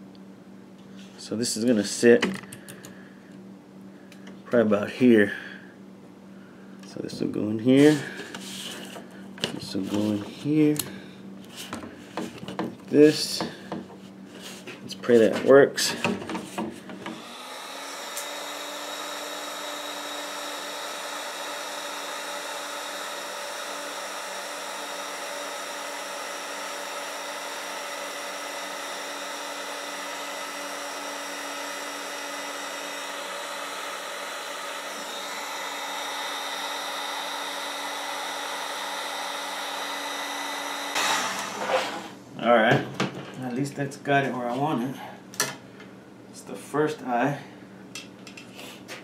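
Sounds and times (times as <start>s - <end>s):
heat gun running: 17.0s - 42.2s.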